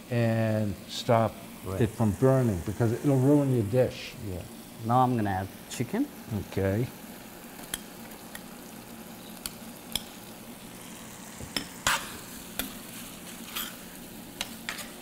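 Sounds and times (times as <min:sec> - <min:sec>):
chicken sizzling in a pan: 0:00.0 - 0:15.0
metal spoon scraping a pan: 0:11.8 - 0:15.0.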